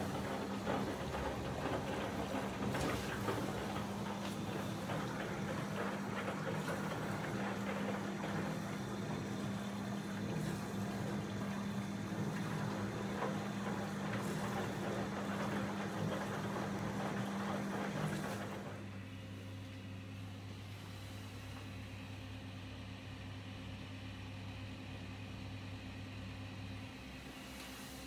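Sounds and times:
water spraying and sloshing: 0:00.0 - 0:18.7
dishwasher pump humming: 0:00.0 - 0:28.0.

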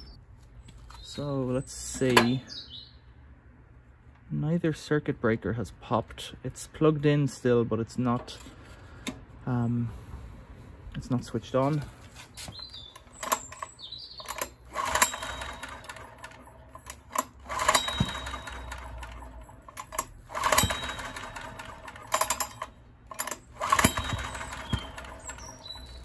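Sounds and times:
generator recoil starter whirr: 0:12.5 - 0:26.0.

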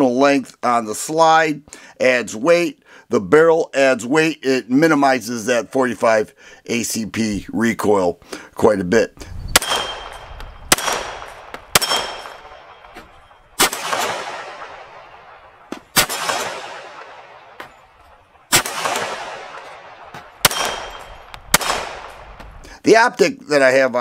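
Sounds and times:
pistol shots with echo: 0:09.5 - 0:22.6.

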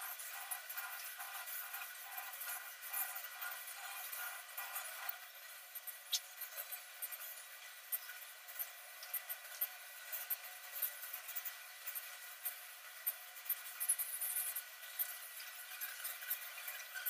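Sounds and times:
beaks scratching and clicking in feathers: 0:00.0 - 0:17.0.

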